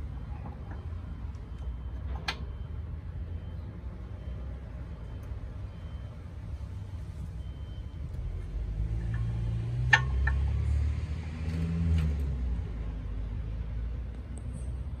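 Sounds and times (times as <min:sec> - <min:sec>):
vehicle engine rumbling: 0:00.0 - 0:15.0
metallic clicks of brake pads: 0:09.0 - 0:10.5.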